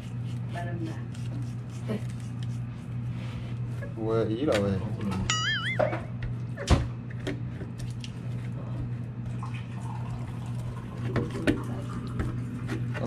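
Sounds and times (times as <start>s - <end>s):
wet squishing and rubbing: 0.0s - 3.8s.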